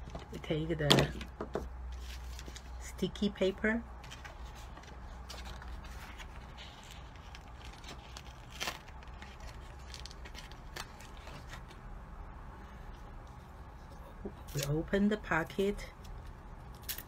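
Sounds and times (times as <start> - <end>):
low steady hum: 0.0 - 17.0
paper rustling and crinkling: 1.9 - 2.8, 4.0 - 11.8
paper crackle: 2.0 - 2.8, 4.0 - 11.8.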